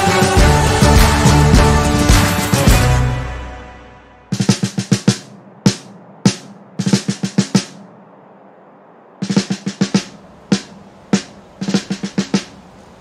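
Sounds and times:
snare drum playing: 0:04.3 - 0:08.0, 0:09.2 - 0:12.6.

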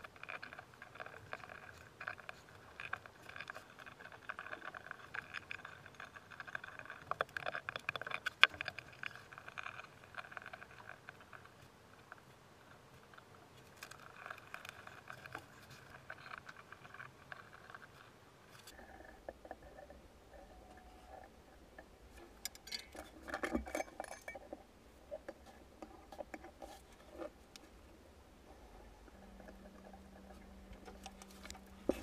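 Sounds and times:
small hard objects clicking: 0:00.0 - 0:12.2.

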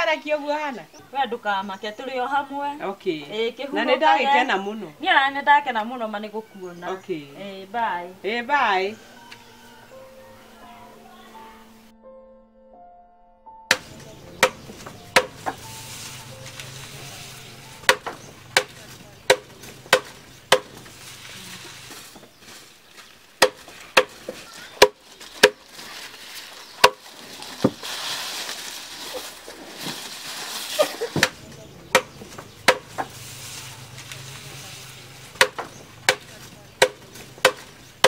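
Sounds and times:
machete chopping grass on wood: 0:13.7 - 0:25.7, 0:26.8 - 0:27.9, 0:30.8 - 0:37.8
cut grass rustling: 0:13.7 - 0:38.0.

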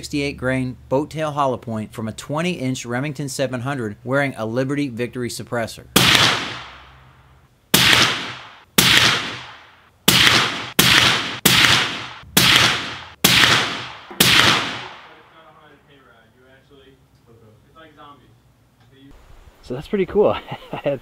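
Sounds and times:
suppressed rifle shots: 0:06.0 - 0:07.1, 0:07.7 - 0:15.3.

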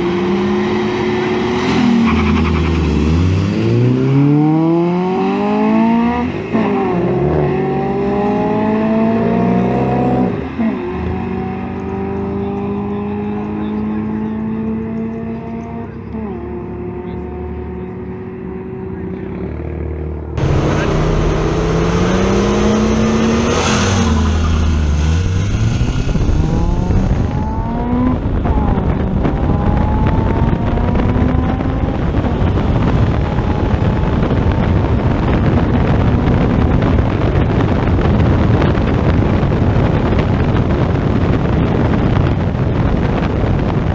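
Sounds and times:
car engines revving and accelerating: 0:00.0 - 0:43.9
wind buffeting microphone: 0:19.7 - 0:43.9.

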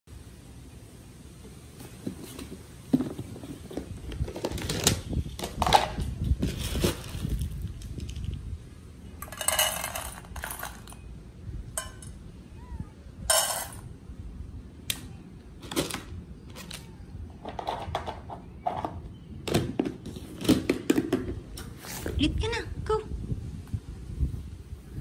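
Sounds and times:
kibble rattling into metal bowls: 0:09.2 - 0:11.0, 0:13.3 - 0:13.8.

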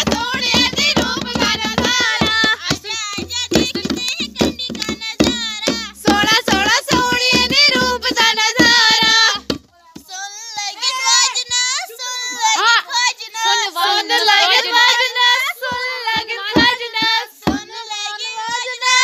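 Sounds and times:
sharp percussive beats: 0:00.0 - 0:10.2, 0:15.6 - 0:17.8
women singing together: 0:00.0 - 0:19.0.

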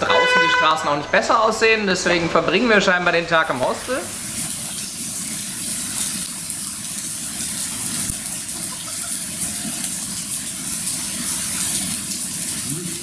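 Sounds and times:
heavy rain pouring on street: 0:03.5 - 0:13.0.

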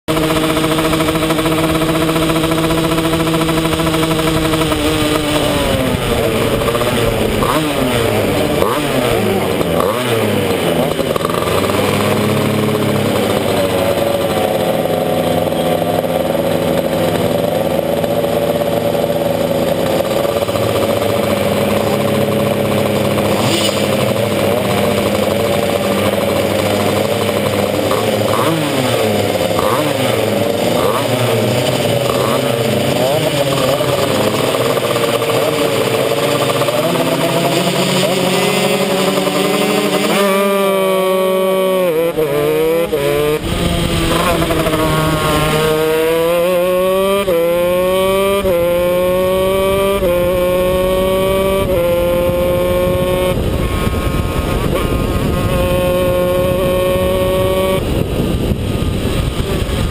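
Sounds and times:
kart engines revving and idling: 0:00.0 - 0:59.9.

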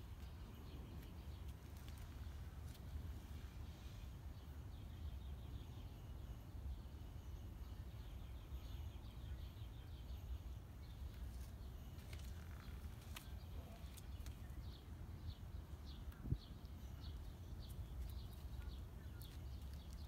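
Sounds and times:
distant birds chirping: 0:00.0 - 0:20.0.

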